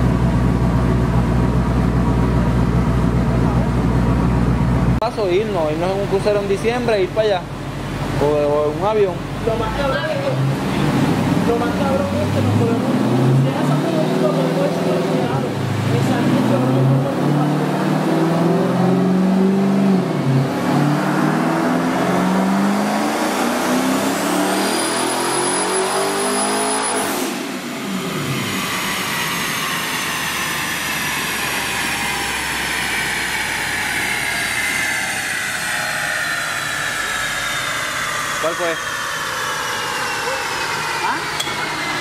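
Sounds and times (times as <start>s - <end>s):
car engine revving: 0.0s - 42.0s
high thin turbo whistle: 24.7s - 27.4s.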